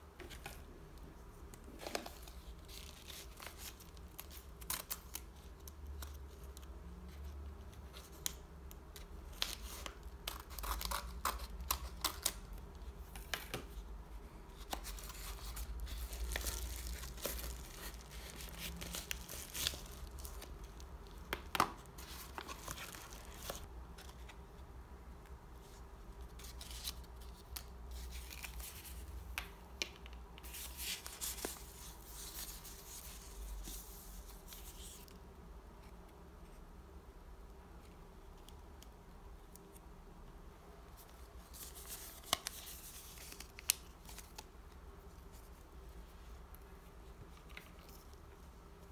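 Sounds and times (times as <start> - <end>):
paper rustling and crinkling: 14.5 - 24.4, 41.0 - 44.5.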